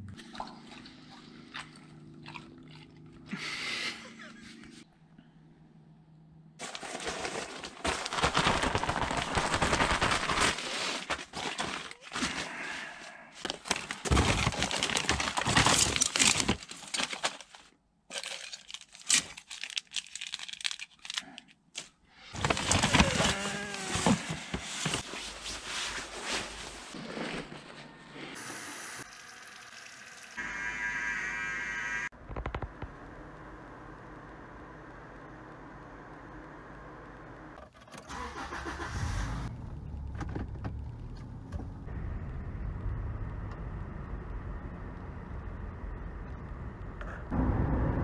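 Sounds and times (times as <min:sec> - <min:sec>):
plastic bags crinkling: 0:06.6 - 0:12.6, 0:13.4 - 0:27.0.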